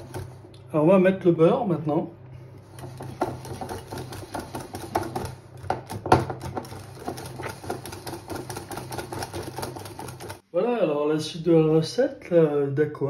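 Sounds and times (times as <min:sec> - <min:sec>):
whisk clicking against bowl: 0:02.7 - 0:10.4.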